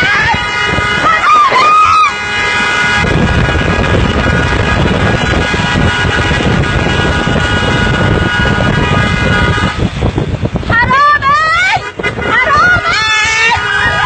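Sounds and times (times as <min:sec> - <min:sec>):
car horn blast: 0:00.0 - 0:10.4, 0:11.6 - 0:14.0
car engine and road rumble: 0:00.0 - 0:14.0.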